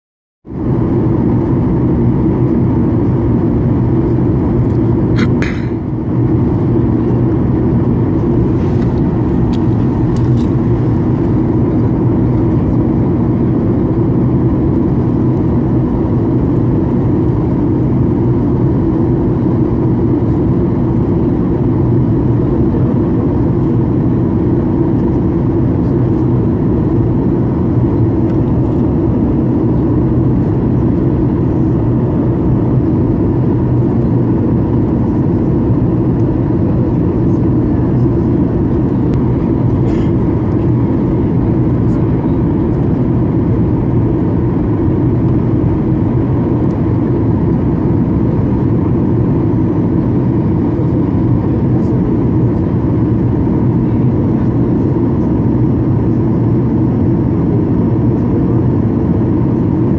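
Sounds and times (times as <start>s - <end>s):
airplane cabin rumble: 0.5s - 59.9s.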